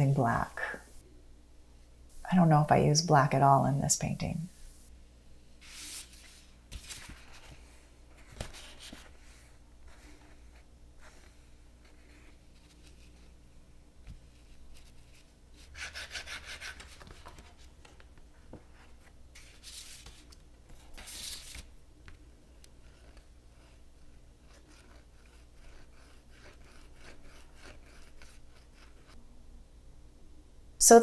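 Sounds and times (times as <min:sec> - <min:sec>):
paper swishes: 0:05.6 - 0:10.5
paper rubbing on tabletop: 0:14.2 - 0:17.7, 0:22.8 - 0:29.2.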